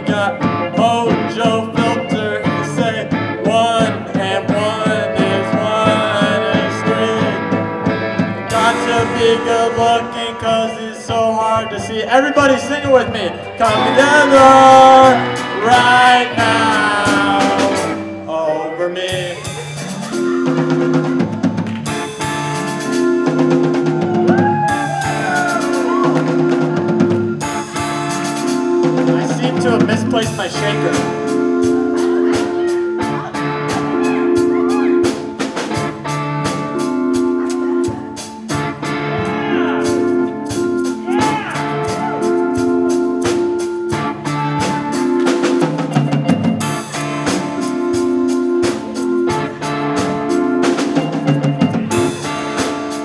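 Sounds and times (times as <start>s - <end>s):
man singing into a microphone: 0.0s - 7.7s, 8.5s - 19.6s
drum kit hits: 0.0s - 10.2s, 19.1s - 53.0s
electric guitars: 0.0s - 53.0s.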